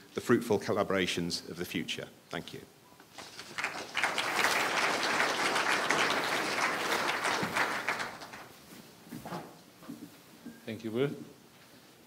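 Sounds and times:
audience applauding: 0:03.2 - 0:08.6.

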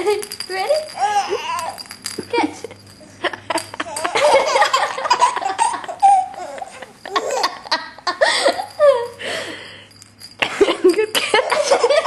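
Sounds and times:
baby laughing: 0:03.8 - 0:07.8.

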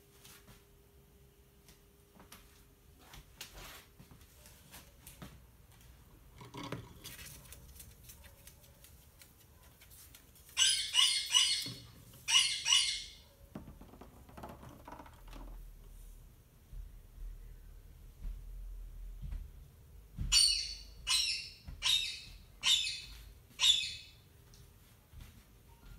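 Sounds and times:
parakeet shrill screeches: 0:10.6 - 0:13.2.

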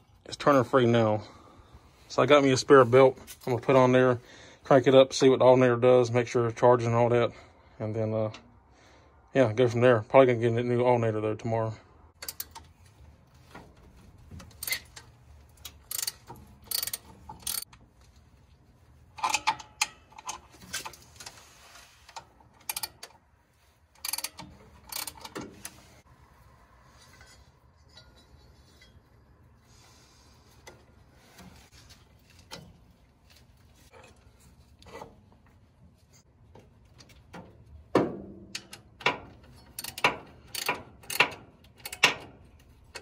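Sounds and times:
hand tools clanking on metal: 0:27.0 - 0:29.2.

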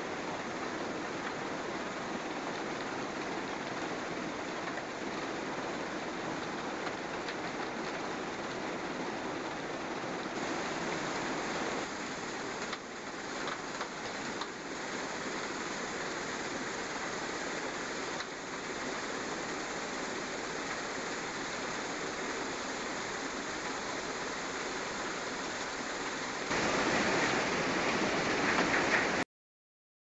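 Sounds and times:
rushing machinery noise: 0:26.5 - 0:29.2.

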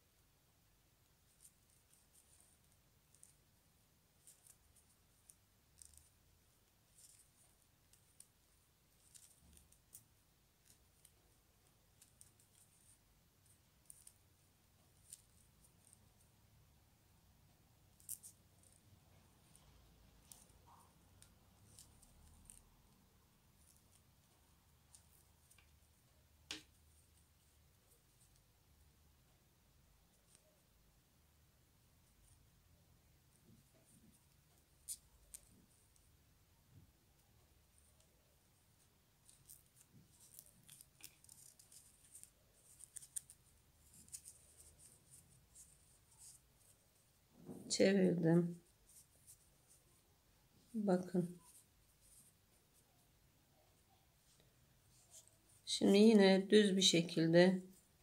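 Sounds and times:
wooden knitting needles clicking: 0:04.2 - 0:06.2, 0:06.9 - 0:14.3, 0:19.5 - 0:23.0, 0:23.6 - 0:27.0, 0:39.2 - 0:46.7.

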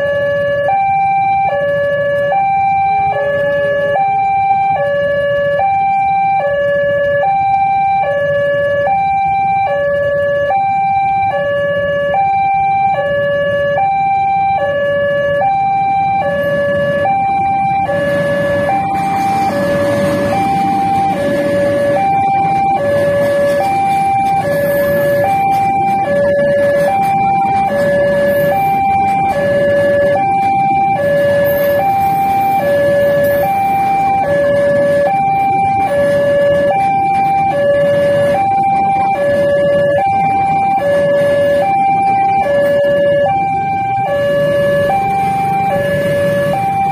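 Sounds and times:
two-tone crossing alarm: 0:00.0 - 0:46.9
train rumbling over crossing: 0:14.6 - 0:46.9.

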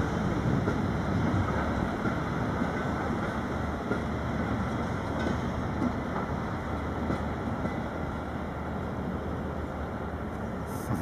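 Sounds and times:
freight train wheels clattering: 0:00.0 - 0:08.2.

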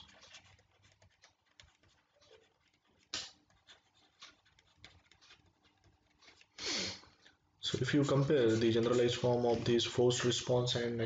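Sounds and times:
person breathing faintly: 0:06.4 - 0:07.4
short sharp breath: 0:06.6 - 0:07.1.

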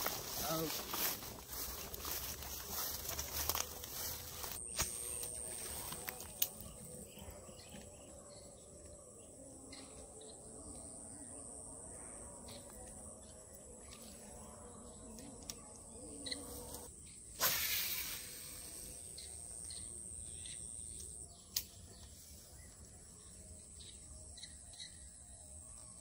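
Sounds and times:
high insect drone: 0:00.0 - 0:26.0
fishing rod cast whoosh: 0:17.4 - 0:18.7.

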